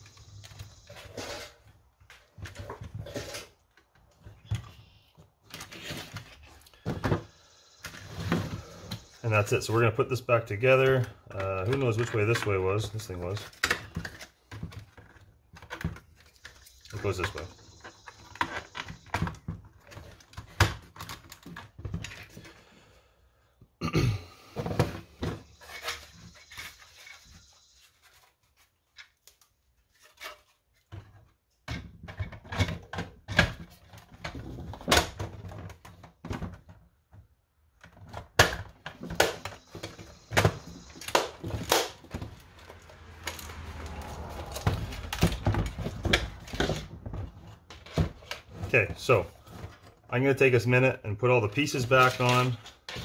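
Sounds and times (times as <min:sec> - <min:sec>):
plastic parts knocking and clicking: 0:10.9 - 0:22.6, 0:30.2 - 0:50.1.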